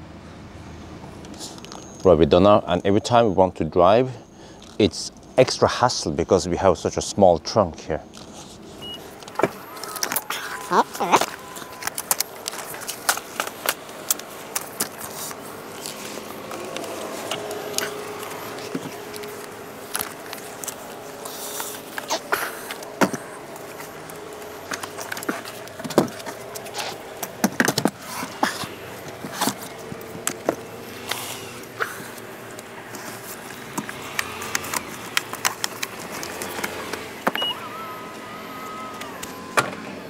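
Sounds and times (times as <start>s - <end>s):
stroller clicks and rattles: 8.1s - 40.0s.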